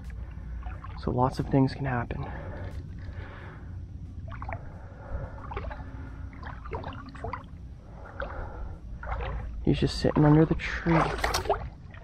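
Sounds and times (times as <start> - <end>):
low rumble: 0.0 - 12.0
shallow water gurgling: 0.0 - 12.0
small water splashes: 0.5 - 1.1, 5.3 - 12.0.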